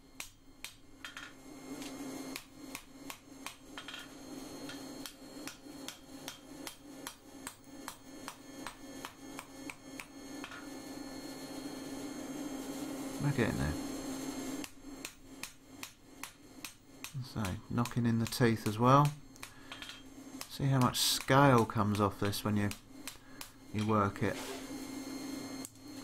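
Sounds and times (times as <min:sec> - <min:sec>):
steady low hum: 0:00.0 - 0:26.0
hammer striking hot steel on anvil: 0:00.2 - 0:10.7, 0:14.6 - 0:24.0.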